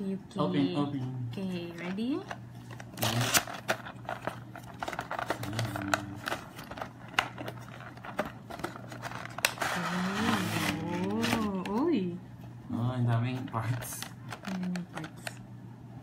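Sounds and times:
low steady hum: 0:00.0 - 0:16.0
plastic rustling: 0:01.8 - 0:12.0.

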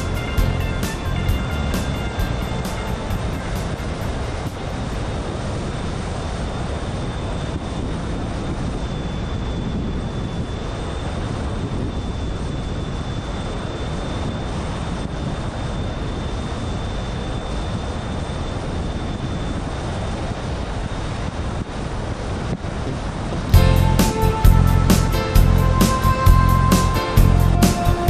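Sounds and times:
car road and wind noise: 0:00.0 - 0:28.0
faint high whine: 0:00.0 - 0:28.0.

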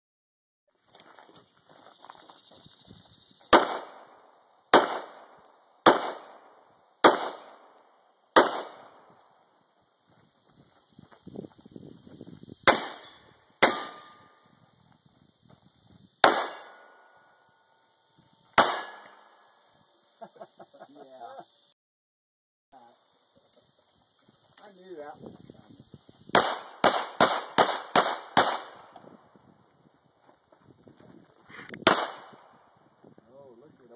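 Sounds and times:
pistol shots: 0:03.5 - 0:07.7, 0:08.4 - 0:09.0, 0:12.7 - 0:14.2, 0:16.2 - 0:17.0, 0:26.3 - 0:28.9, 0:31.8 - 0:32.4.

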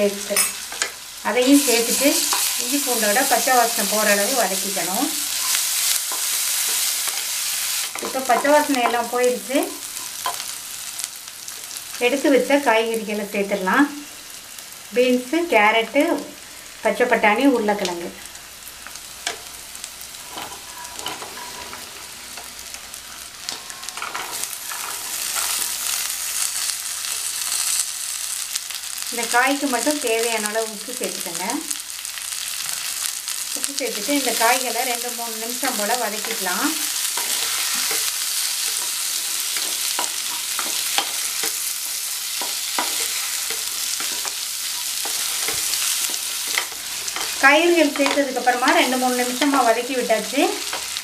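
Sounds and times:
vegetables sizzling in hot oil: 0:00.0 - 0:51.0
spatula scraping and tapping pan: 0:05.3 - 0:09.1, 0:20.2 - 0:22.6, 0:23.5 - 0:25.9, 0:36.2 - 0:49.6.

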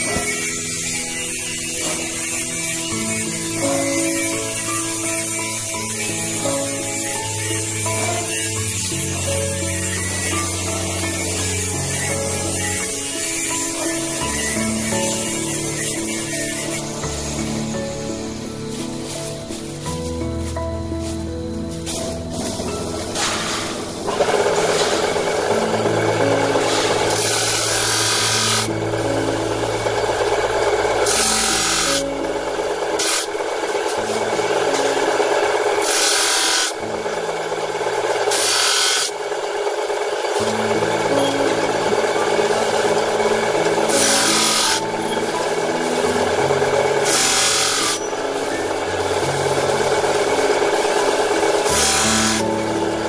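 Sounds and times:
loud hissing surges: 0:00.0 - 0:37.0
wire-making machine rasping: 0:00.0 - 0:53.0.

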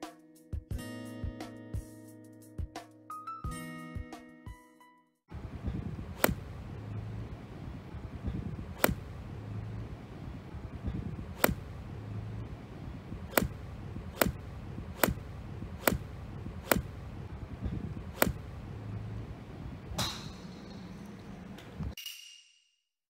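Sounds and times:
golf iron striking balls: 0:05.8 - 0:07.0, 0:08.6 - 0:09.4, 0:10.8 - 0:22.0.

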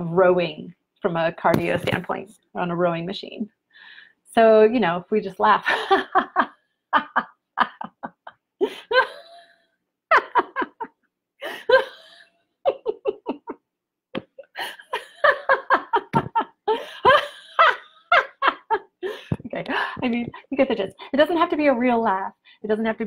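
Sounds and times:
woman laughing: 0:05.6 - 0:13.6, 0:14.2 - 0:20.5.

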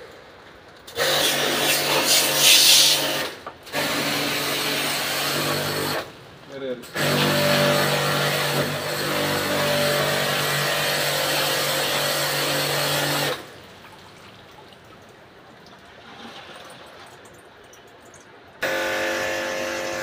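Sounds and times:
water jet hissing: 0:01.0 - 0:03.3
pressure washer motor hum: 0:06.9 - 0:13.5, 0:18.6 - 0:20.0.

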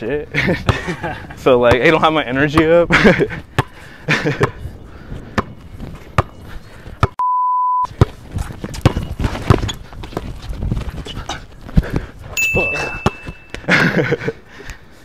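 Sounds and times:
basketball bouncing on concrete: 0:03.5 - 0:03.8, 0:05.3 - 0:06.4, 0:07.9 - 0:10.9
censor bleep: 0:07.2 - 0:07.9.

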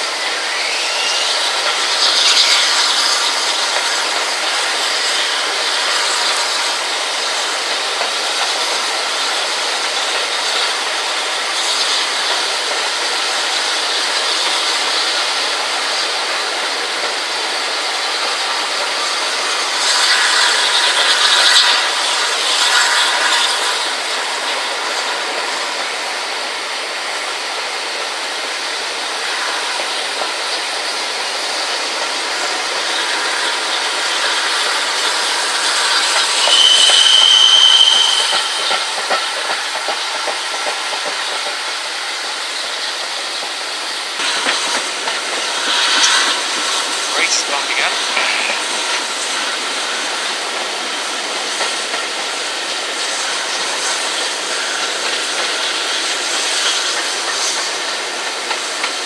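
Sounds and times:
steam train running: 0:00.0 - 0:59.0
high steady tone: 0:36.4 - 0:39.2.

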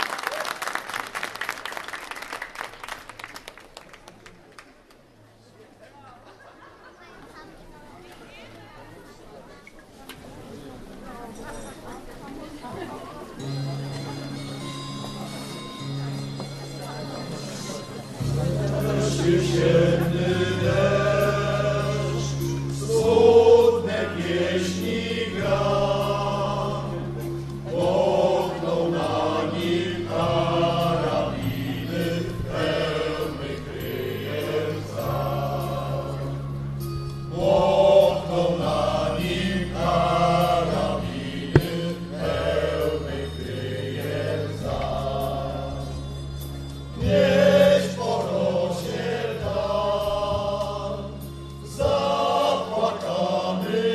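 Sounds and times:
choral singing: 0:18.2 - 0:36.4, 0:37.3 - 0:46.0, 0:47.0 - 0:53.9.

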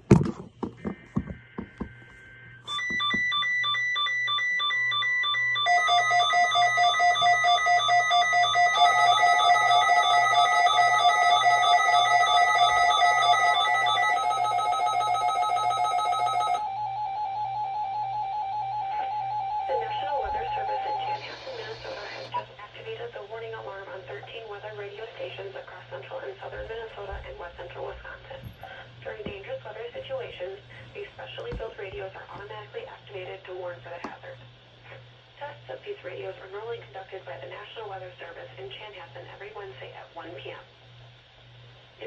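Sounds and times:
pulsing alarm beeps: 0:00.9 - 0:21.7.

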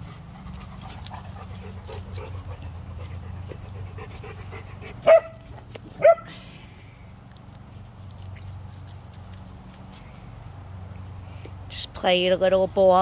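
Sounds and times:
dog barking: 0:05.0 - 0:05.4, 0:06.0 - 0:06.3.

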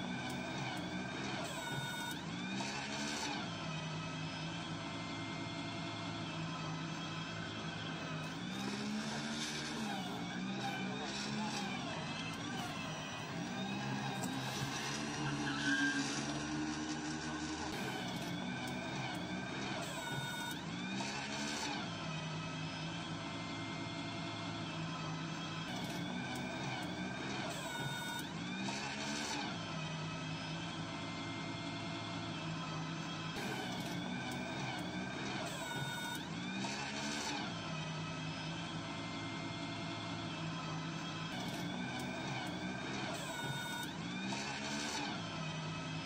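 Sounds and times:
electric loader motor whine: 0:00.0 - 0:46.0
electric motor hum: 0:05.4 - 0:20.5.

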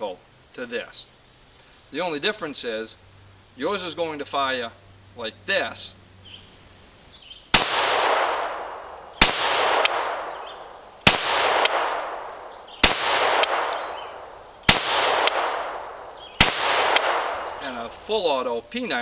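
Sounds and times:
rifle gunshots: 0:07.5 - 0:18.0
faint echo crack: 0:07.6 - 0:18.0.

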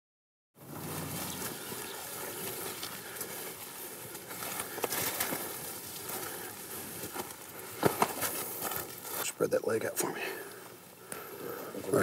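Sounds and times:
footsteps on dry leaves: 0:00.6 - 0:09.4
sharp twig crackles: 0:00.7 - 0:09.3.

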